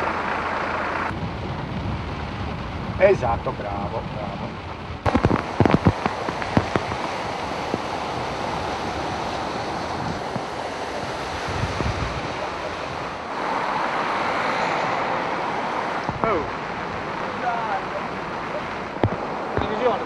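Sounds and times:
floodwater rushing: 1.9s - 20.0s
sharp knocks: 19.0s - 19.8s.

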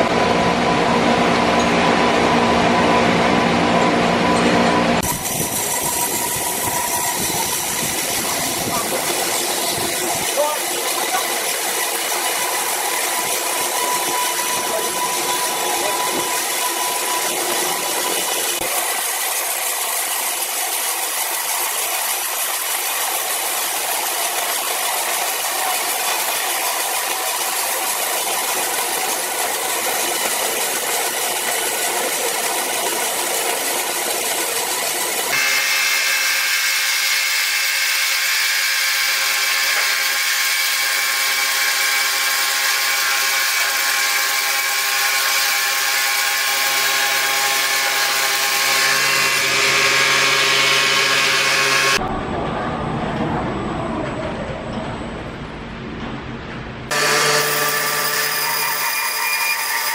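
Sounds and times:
band saw cutting timber: 4.9s - 52.0s, 56.9s - 59.9s.

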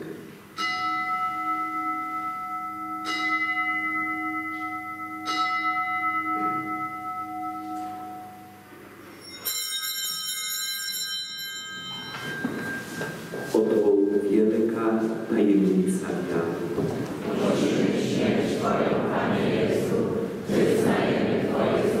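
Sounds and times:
altar bell strikes: 0.6s - 14.3s
bright jingling bell ring: 9.1s - 13.6s.

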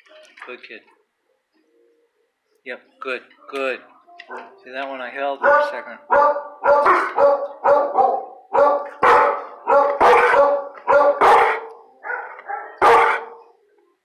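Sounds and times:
dog barking: 5.4s - 13.5s.

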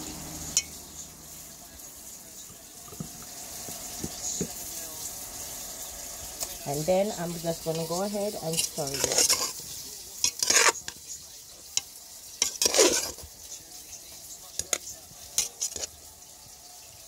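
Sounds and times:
wet scrapes and squelches: 8.5s - 9.6s, 10.3s - 11.0s, 12.4s - 13.2s, 14.6s - 16.0s.

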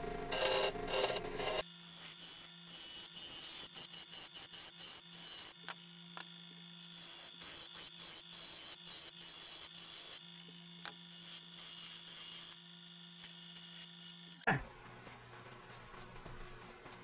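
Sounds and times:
lathe motor hum: 0.0s - 1.6s
lathe tool scraping wood: 0.0s - 12.6s.

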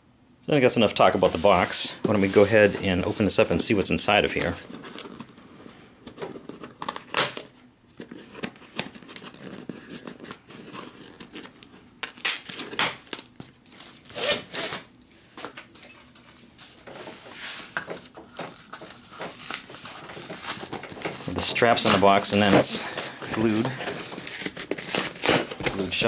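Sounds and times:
plastic straps scraping cardboard: 16.9s - 26.0s.

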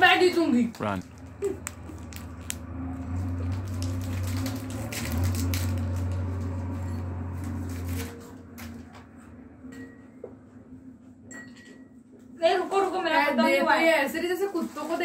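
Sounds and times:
wrapper crackling: 0.4s - 6.7s, 14.1s - 15.0s
biscuits being eaten: 0.8s - 6.6s.

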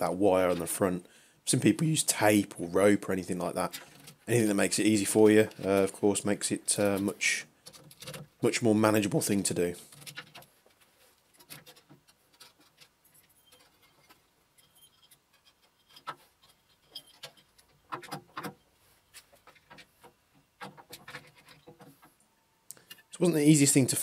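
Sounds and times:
soft rubbing: 8.4s - 22.3s.

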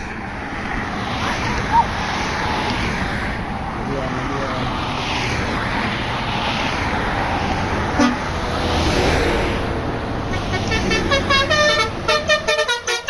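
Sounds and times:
highway traffic passing: 0.0s - 13.0s
car horn toot: 8.0s - 8.3s, 10.4s - 13.0s
bus horn playing melody: 8.0s - 8.4s, 10.3s - 13.0s.

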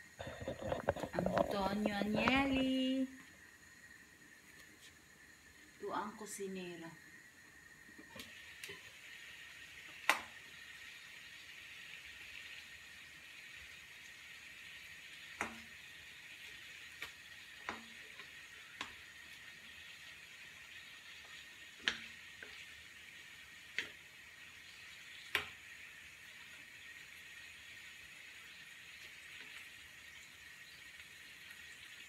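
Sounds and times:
meat sizzling in a pan: 0.0s - 32.0s
wooden spatula knocking on pan: 17.6s - 18.0s.

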